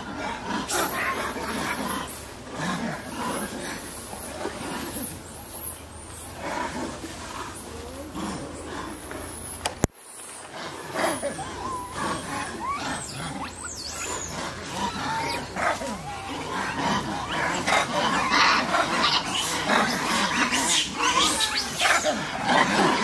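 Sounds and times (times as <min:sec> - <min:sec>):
monkeys screeching: 0:00.4 - 0:02.4, 0:10.9 - 0:23.0
monkeys squeaking and chirping: 0:00.6 - 0:02.4, 0:10.6 - 0:23.0.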